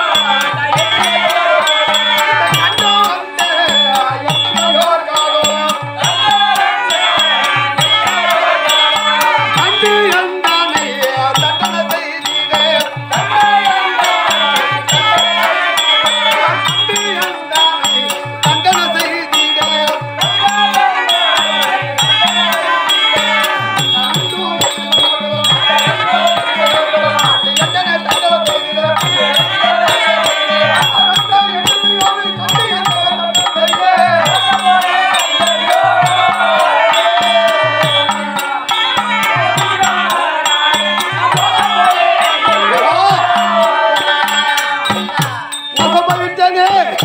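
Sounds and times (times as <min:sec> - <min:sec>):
ankle bells jingling: 0:00.0 - 0:47.0
hand drum beating: 0:17.9 - 0:47.0.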